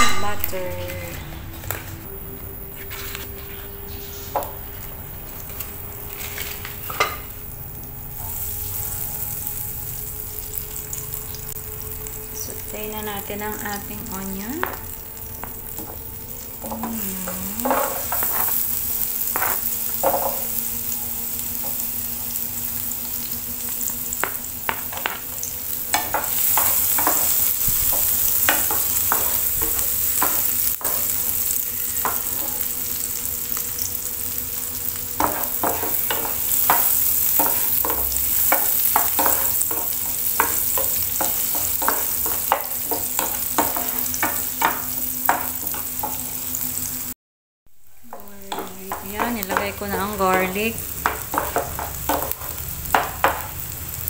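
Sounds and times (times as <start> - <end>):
onion sizzling in oil: 0.0 - 54.0.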